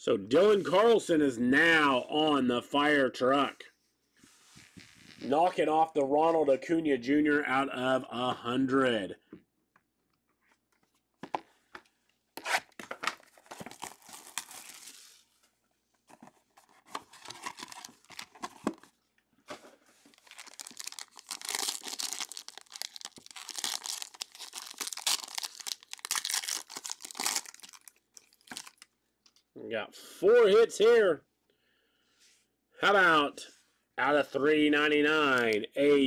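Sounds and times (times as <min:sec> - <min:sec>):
foil wrapper crinkling: 0:13.3 - 0:15.2, 0:17.0 - 0:18.4, 0:20.0 - 0:28.9.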